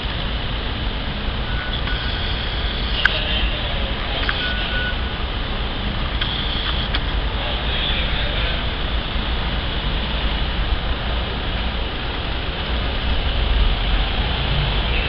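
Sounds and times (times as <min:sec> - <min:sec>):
vehicle rumble: 0:00.0 - 0:15.0.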